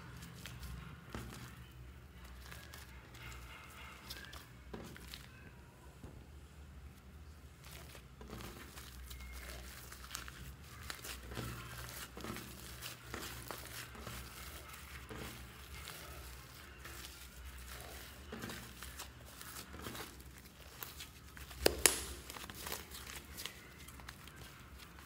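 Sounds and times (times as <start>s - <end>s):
hands squishing slime: 7.6s - 25.0s
slime snaps: 21.6s - 22.2s.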